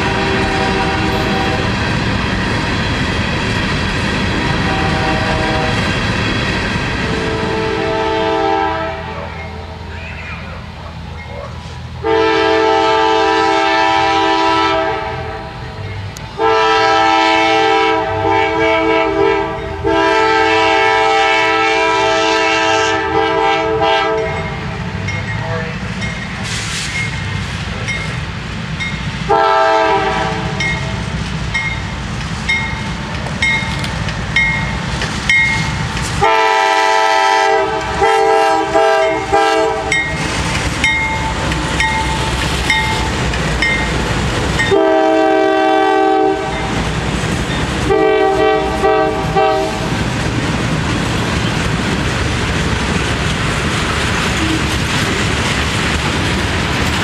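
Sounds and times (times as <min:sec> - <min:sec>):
locomotive air horn blasts: 0:00.0 - 0:01.8, 0:04.5 - 0:06.0, 0:07.0 - 0:09.3, 0:12.0 - 0:15.8, 0:16.4 - 0:24.4, 0:29.3 - 0:31.0, 0:36.2 - 0:40.0, 0:44.6 - 0:46.8, 0:47.8 - 0:49.9
freight cars rumbling and clattering: 0:00.0 - 0:08.1, 0:24.1 - 0:29.3, 0:30.1 - 0:36.2, 0:37.6 - 0:44.8, 0:46.4 - 0:47.9, 0:48.6 - 0:57.0
bell ringing: 0:40.8 - 0:44.0.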